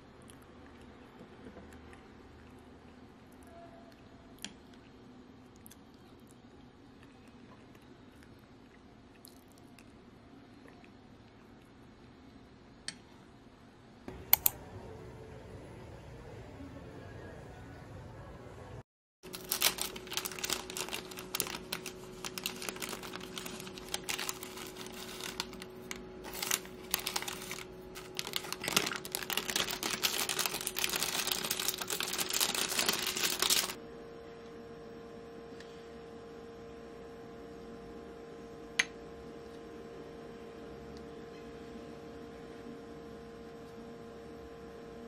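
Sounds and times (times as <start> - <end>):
steady low hum: 4.0 - 45.0
plastic bag crinkling: 19.2 - 33.8.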